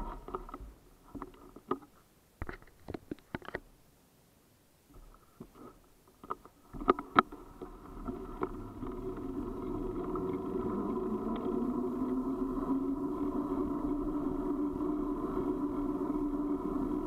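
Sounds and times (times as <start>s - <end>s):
sharp clicks and knocks: 0.0s - 3.7s, 5.0s - 9.2s.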